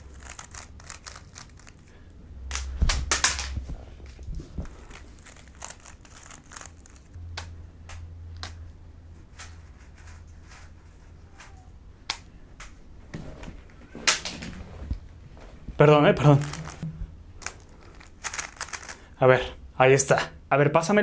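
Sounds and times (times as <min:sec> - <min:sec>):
speed cube layers clicking: 0:00.1 - 0:01.8, 0:04.8 - 0:07.1, 0:17.4 - 0:19.0
handling noise: 0:13.0 - 0:19.1.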